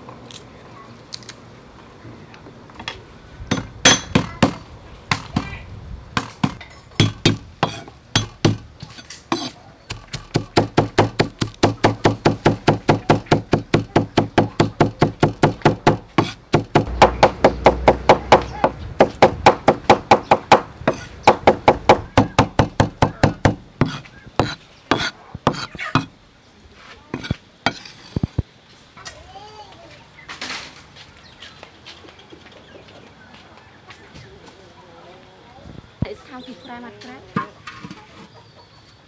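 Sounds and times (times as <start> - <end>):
cleaver chopping on wooden board: 6.2 - 8.7, 9.3 - 26.1.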